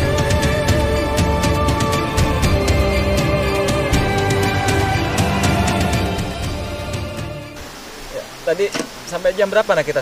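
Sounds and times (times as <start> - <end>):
sustained steady music tones: 0.0 - 7.9.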